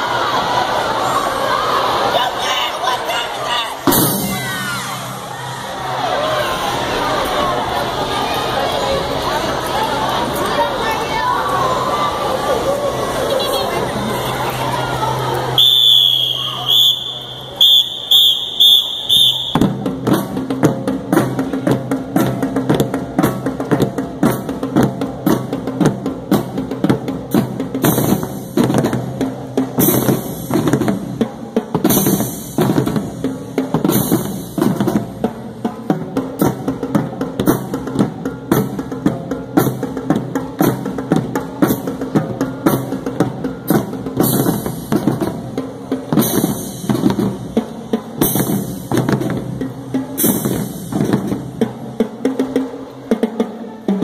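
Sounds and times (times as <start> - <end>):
marching bass drums: 3.9 - 6.0, 15.5 - 53.2.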